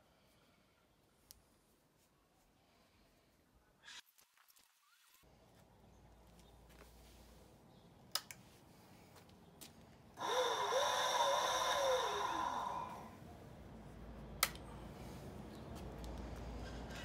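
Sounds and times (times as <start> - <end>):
scooter motor and chain whirring: 10.2 - 13.2.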